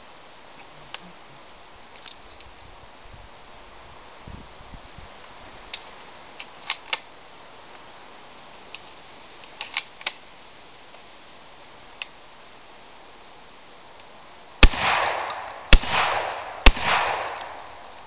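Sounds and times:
steady background hiss: 0.0 - 18.0
sharp clicks and snaps: 8.7 - 10.2.

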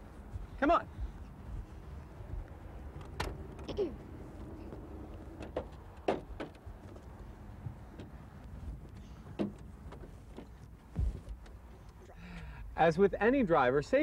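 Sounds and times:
low steady rumble: 0.0 - 6.0
truck door clunking: 5.3 - 6.7, 9.3 - 11.5.

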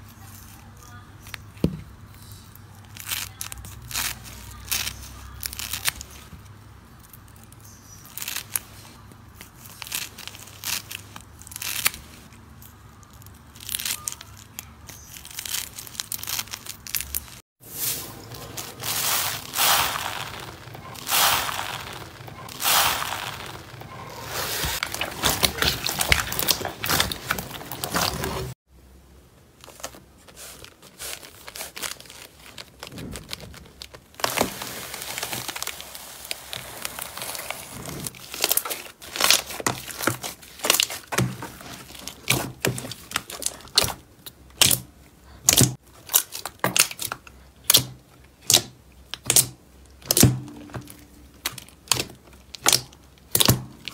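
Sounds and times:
paper crinkling: 2.2 - 28.6, 29.6 - 44.0
hand sweeping through foam beads: 17.6 - 28.6.

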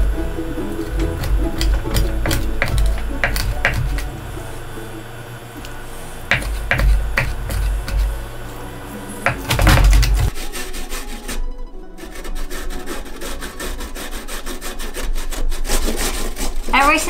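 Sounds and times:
carrot scraping on box grater: 0.0 - 4.6, 5.6 - 17.0
knife chopping on wooden board: 0.8 - 4.2, 5.6 - 8.3, 9.2 - 10.4.

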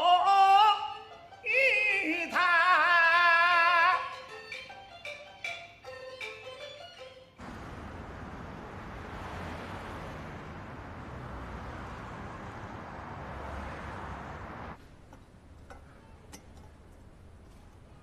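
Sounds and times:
distant city traffic hum: 7.4 - 18.0.

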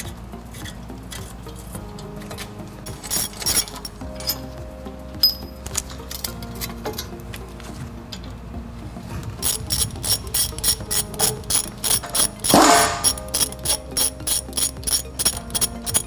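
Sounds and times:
hand ratchet clicking: 2.9 - 4.5, 9.4 - 16.0
ratchet rasp: 2.9 - 4.5, 9.4 - 16.0.

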